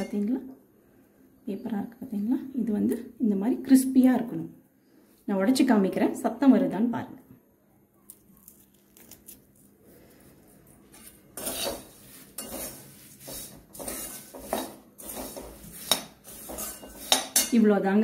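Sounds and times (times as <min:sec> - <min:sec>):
spoon scraping metal pan: 0:10.9 - 0:17.6.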